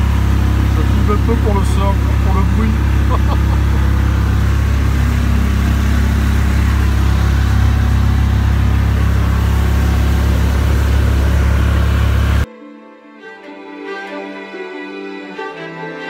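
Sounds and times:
tuk-tuk engine running: 0:00.0 - 0:12.5
wind and road noise: 0:00.0 - 0:12.5.

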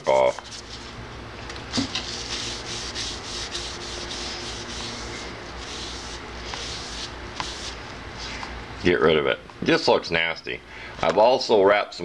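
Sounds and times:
hand rubbing wet axe head: 0:02.0 - 0:08.4.

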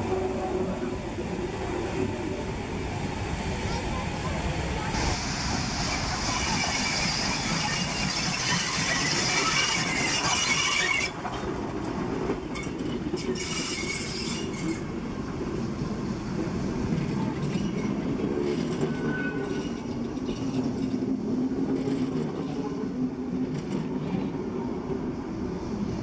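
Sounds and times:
train wheels rumbling on rails: 0:00.0 - 0:26.0
train wheel squeal: 0:05.0 - 0:11.4, 0:12.5 - 0:14.9, 0:17.2 - 0:21.0.

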